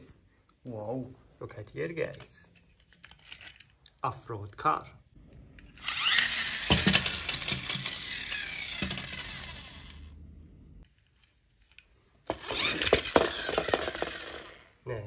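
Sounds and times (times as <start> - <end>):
toy truck gear whirring: 2.7 - 3.8, 5.6 - 10.2, 10.8 - 14.8
plastic toy truck clattering: 12.3 - 14.7.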